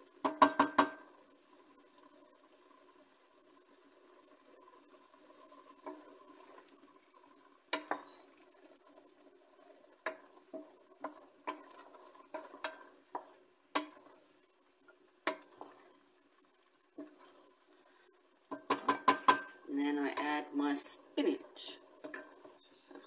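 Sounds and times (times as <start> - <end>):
wooden spoon scraping a pot: 5.2 - 14.2, 15.2 - 16.1, 17.0 - 20.4, 21.6 - 23.0.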